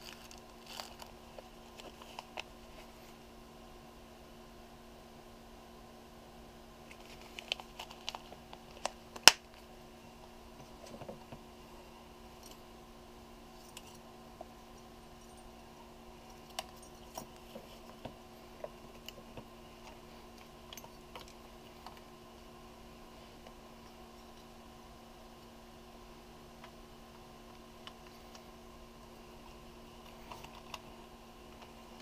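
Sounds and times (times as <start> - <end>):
paper rustling: 0.0 - 3.2, 6.9 - 8.9.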